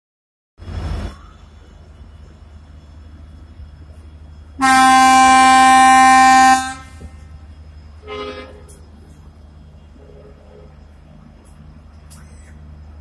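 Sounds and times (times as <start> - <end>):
train horn blasts: 4.6 - 7.2, 8.0 - 8.8.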